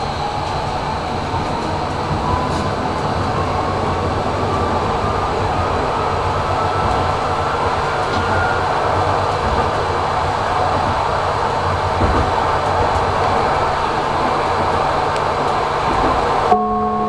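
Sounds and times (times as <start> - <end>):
tram wheels rumbling on rail: 0.0 - 17.0
faint steady high tone: 16.5 - 17.0.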